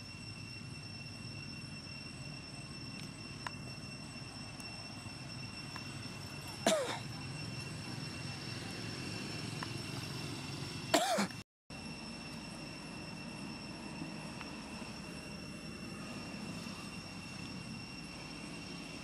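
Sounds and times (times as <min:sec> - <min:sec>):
steady low hum: 0:00.0 - 0:19.0
thin high tone: 0:11.7 - 0:19.0.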